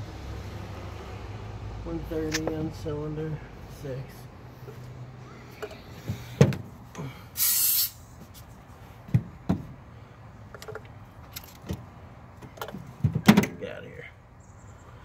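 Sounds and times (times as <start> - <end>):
pressure hiss: 7.4 - 8.1.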